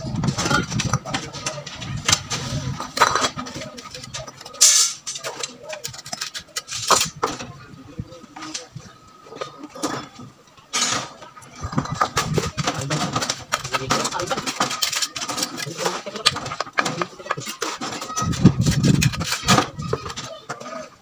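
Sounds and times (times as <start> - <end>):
stones and trowel knocking: 10.8 - 20.6.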